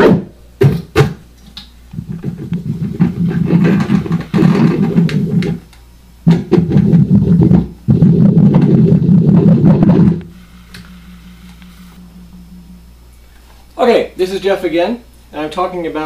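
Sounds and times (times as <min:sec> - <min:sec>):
amplifier hum: 0:00.0 - 0:16.0
rough noisy drone: 0:08.0 - 0:13.6.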